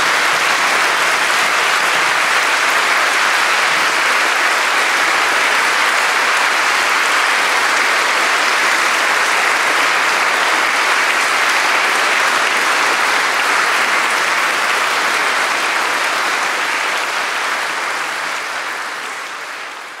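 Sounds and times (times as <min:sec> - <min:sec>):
audience applauding: 0:00.0 - 0:20.0.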